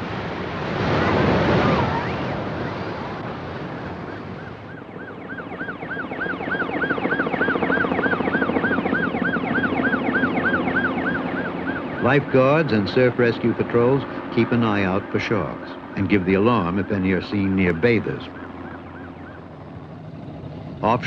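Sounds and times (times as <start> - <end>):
helicopter hum: 0.0 - 21.0
siren sweeping up and down: 0.9 - 13.3, 16.4 - 19.6.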